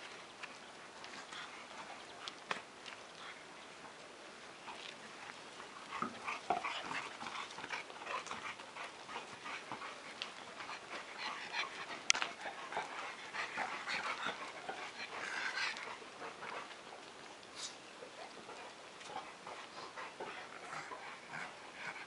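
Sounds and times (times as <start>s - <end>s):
dogs panting and sniffing: 0.0s - 22.0s.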